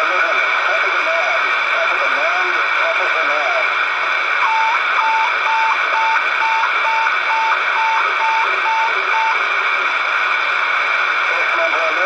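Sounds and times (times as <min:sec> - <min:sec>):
loud steady receiver hiss: 0:00.0 - 0:12.0.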